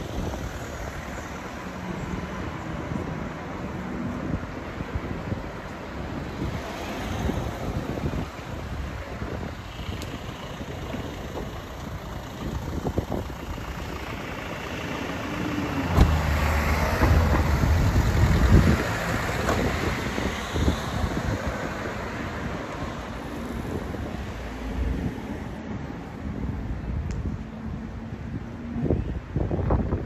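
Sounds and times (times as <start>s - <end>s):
motor vehicle passing: 12.8s - 21.9s.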